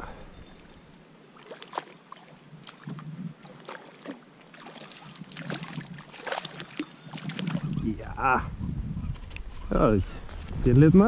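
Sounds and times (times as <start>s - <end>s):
fish splashing in water: 1.4s - 7.8s.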